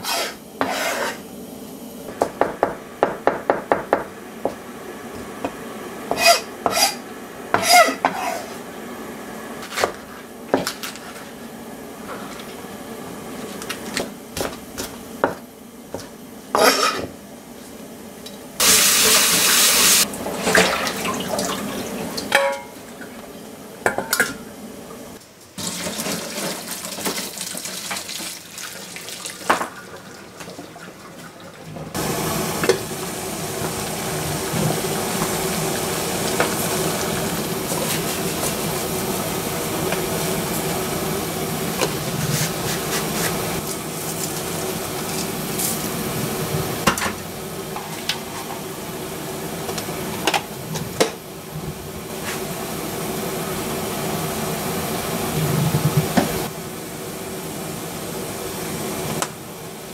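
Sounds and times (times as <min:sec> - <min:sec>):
water boiling hard: 0:18.6 - 0:23.3, 0:25.6 - 0:59.9
water pouring into colander: 0:25.6 - 0:31.7.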